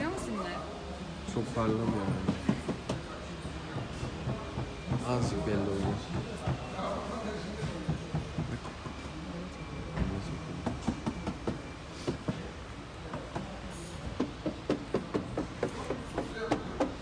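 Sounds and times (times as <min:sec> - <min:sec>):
knocks on car metal: 0:01.8 - 0:03.1, 0:10.6 - 0:12.5, 0:14.2 - 0:17.0.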